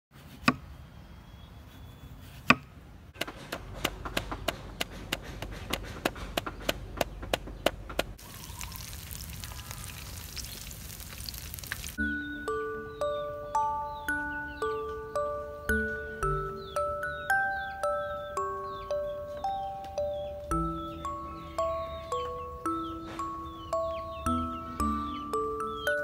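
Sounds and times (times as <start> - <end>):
cleaver chopping on wooden block: 2.5 - 8.2
hot oil sizzling: 8.2 - 12.0.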